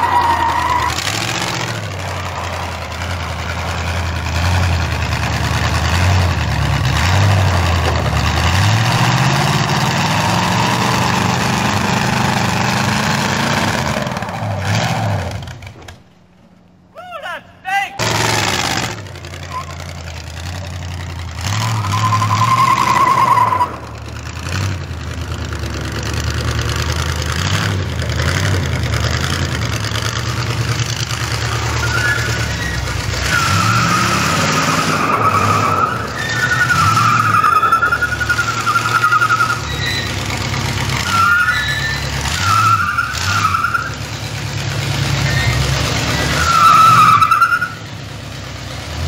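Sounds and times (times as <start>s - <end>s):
high squeals: 0.0s - 4.6s, 19.4s - 20.2s, 21.3s - 24.3s, 31.1s - 44.1s, 45.1s - 47.8s
car engine running: 0.0s - 16.9s, 18.0s - 49.0s.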